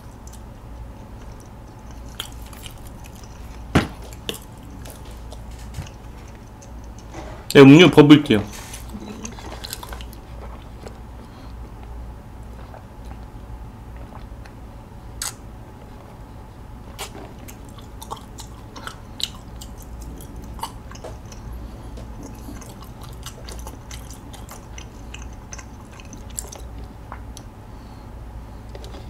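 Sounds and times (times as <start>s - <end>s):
wet chewing: 0.0s - 7.1s, 8.7s - 13.3s, 16.9s - 27.5s.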